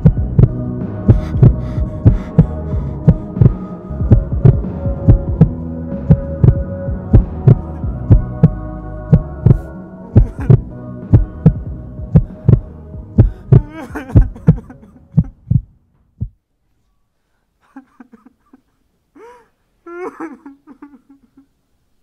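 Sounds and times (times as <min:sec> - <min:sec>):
heartbeat thumps: 0:00.0 - 0:16.4
steady low hum: 0:00.0 - 0:16.4.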